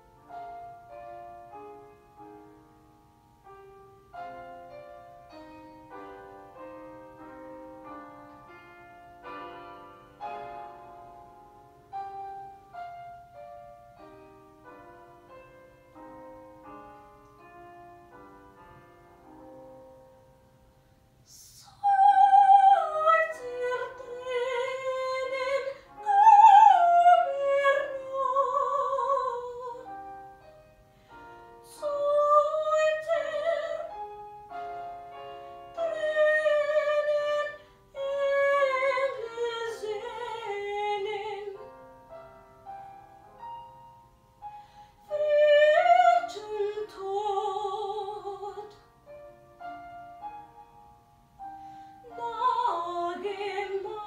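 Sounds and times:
piano: 0.0s - 54.0s
woman singing operatically: 21.3s - 29.9s, 31.7s - 34.0s, 35.7s - 41.6s, 45.1s - 48.8s, 52.0s - 54.0s.

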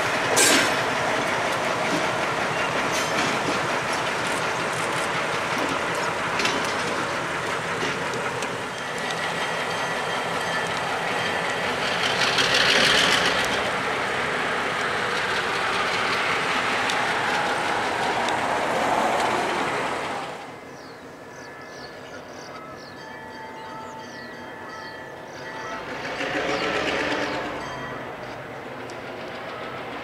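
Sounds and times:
diesel locomotive engine rumble: 0.0s - 30.0s
wheels clattering over track: 0.3s - 9.8s, 10.5s - 20.3s.

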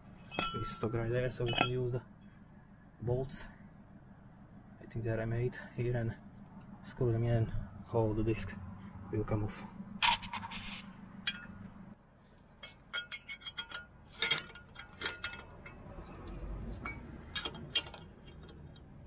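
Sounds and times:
metallic clinks of bolts: 0.2s - 2.0s, 11.2s - 11.6s, 12.6s - 19.0s
ring spanner turning bolts: 0.2s - 2.4s, 9.8s - 11.8s, 12.6s - 19.0s.

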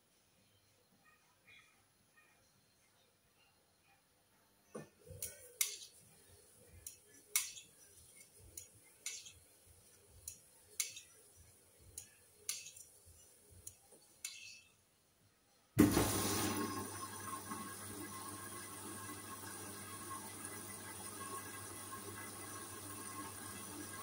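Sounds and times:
rush of water filling machine: 15.8s - 24.0s.

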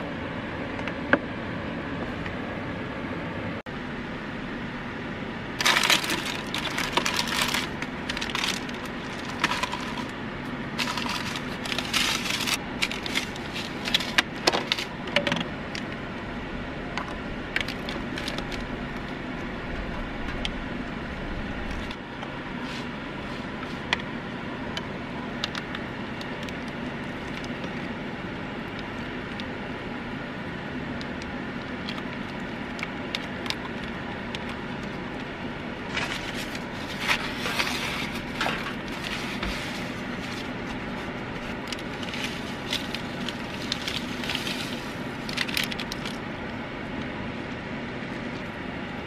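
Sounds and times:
steady low hum: 0.0s - 49.0s
plastic packaging crinkling: 5.6s - 15.0s, 17.6s - 19.1s, 35.9s - 46.2s
plastic containers clicking: 10.8s - 15.5s.

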